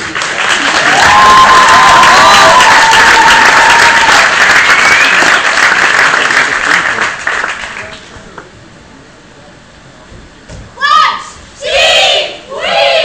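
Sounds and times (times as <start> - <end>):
audience applauding and cheering: 0.0 - 8.0.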